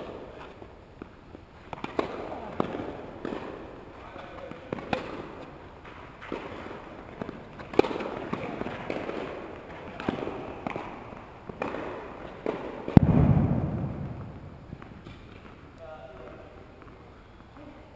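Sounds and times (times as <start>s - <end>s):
tennis ball bouncing: 1.0s - 3.6s, 4.7s - 5.2s
racquet striking tennis ball: 1.7s - 3.7s, 4.7s - 5.4s, 11.5s - 15.6s
loud thump: 13.0s - 15.0s.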